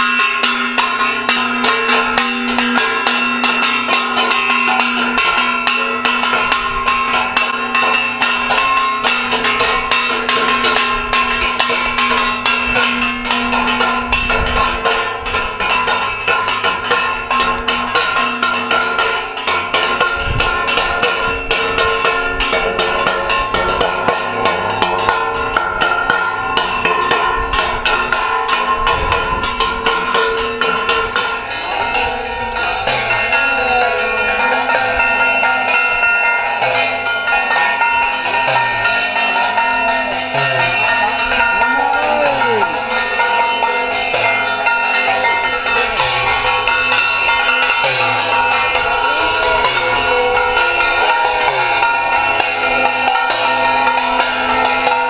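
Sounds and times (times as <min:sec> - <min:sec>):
fast metallic percussion: 0:00.0 - 0:55.0.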